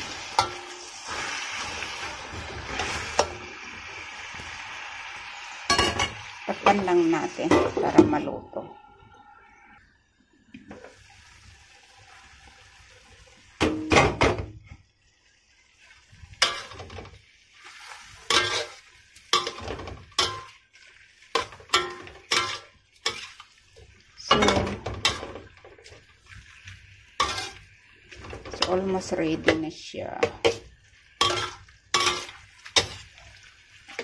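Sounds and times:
food sizzling in a wok: 0:00.0 - 0:34.0
utensil scraping against wok: 0:16.3 - 0:23.7, 0:24.3 - 0:34.0.

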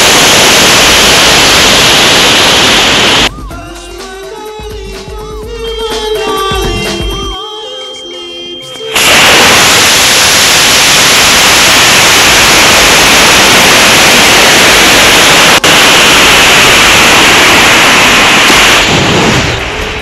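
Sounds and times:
airflow over rocket body: 0:00.0 - 0:03.3, 0:09.0 - 0:20.0
rocket motor rushing hiss: 0:00.0 - 0:03.3, 0:09.0 - 0:20.0.

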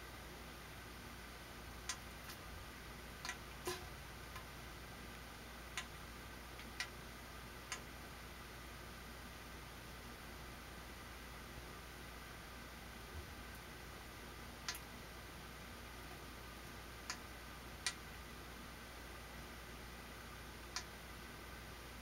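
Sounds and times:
faint steady hiss: 0:00.0 - 0:22.0
small sharp clicks: 0:07.7 - 0:07.9, 0:14.6 - 0:14.9, 0:20.6 - 0:20.9.

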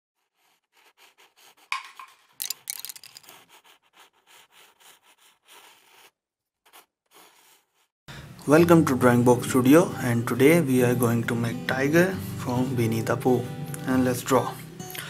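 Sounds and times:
quick scratching strokes: 0:00.2 - 0:07.9.

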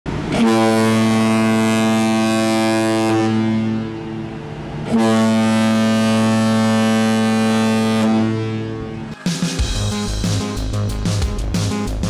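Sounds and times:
deep ship's horn blasts: 0:00.1 - 0:09.2.

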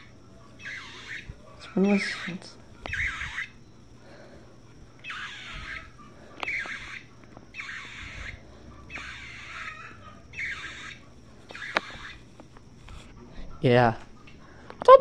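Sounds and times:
blue jay jeer calls: 0:00.0 - 0:03.6, 0:05.0 - 0:12.3.

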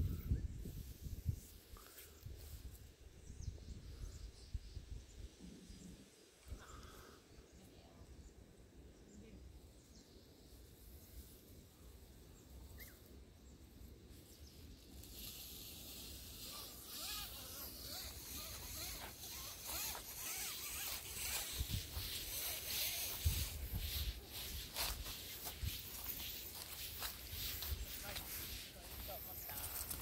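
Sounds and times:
footsteps through dry leaves: 0:18.4 - 0:30.0.

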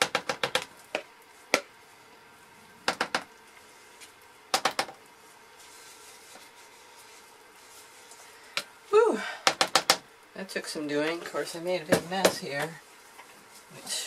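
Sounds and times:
spatula tapping soap mold: 0:09.4 - 0:10.0.

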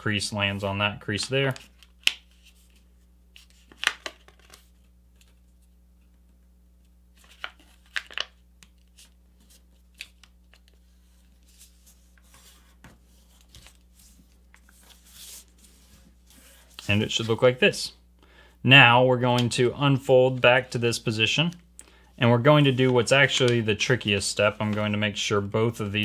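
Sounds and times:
paper rustling and crinkling: 0:07.2 - 0:17.4.

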